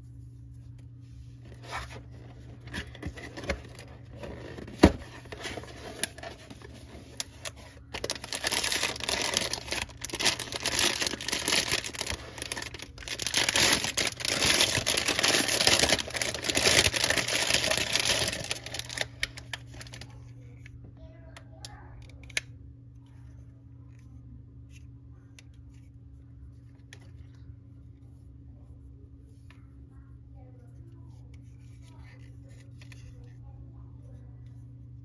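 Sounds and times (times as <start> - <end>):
plastic bags crinkling: 1.5 - 20.1.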